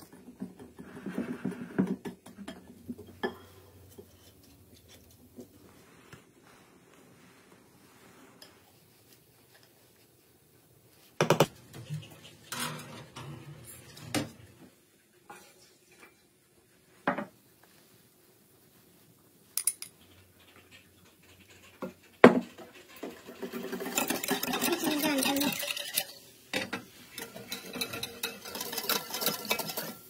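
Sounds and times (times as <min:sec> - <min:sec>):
kitchenware clinking and knocking: 0:00.0 - 0:04.0, 0:17.1 - 0:17.4, 0:21.6 - 0:30.0.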